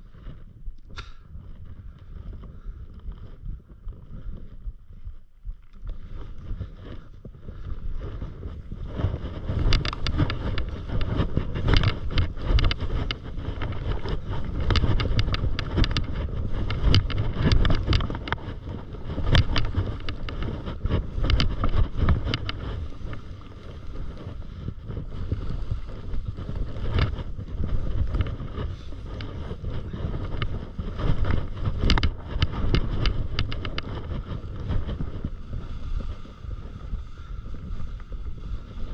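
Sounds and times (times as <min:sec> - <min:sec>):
wind on microphone: 0:00.0 - 0:38.9
skis scraping over bumps: 0:05.8 - 0:38.9
skis hissing through snow: 0:22.7 - 0:26.8, 0:34.4 - 0:38.9.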